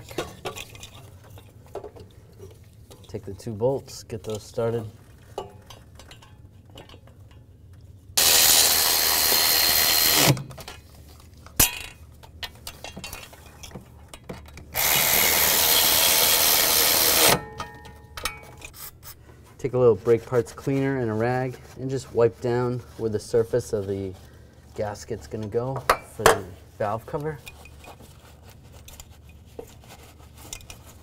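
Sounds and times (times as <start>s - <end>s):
cordless power tool driving bolts: 8.2s - 10.5s, 14.7s - 17.4s.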